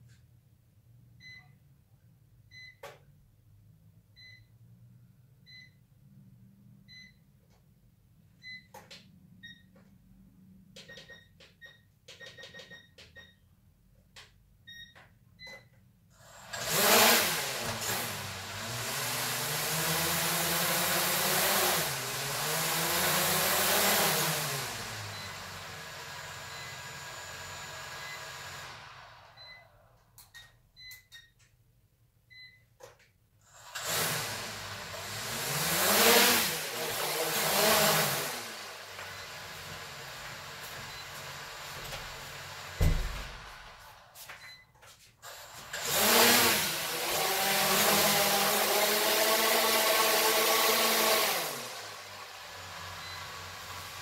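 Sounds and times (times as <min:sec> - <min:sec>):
drone propellers whirring: 0:33.8 - 0:39.9, 0:45.8 - 0:52.0.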